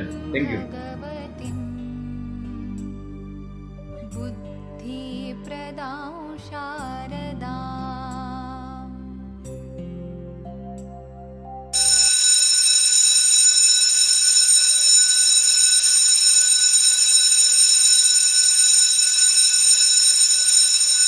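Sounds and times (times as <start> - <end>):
soft synth music: 0.0 - 12.4.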